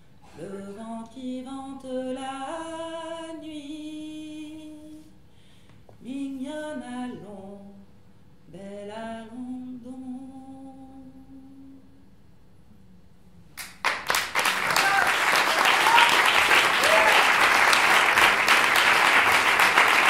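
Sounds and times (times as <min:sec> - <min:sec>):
woman singing unaccompanied: 0:00.3 - 0:05.2, 0:06.0 - 0:07.9, 0:08.5 - 0:12.0.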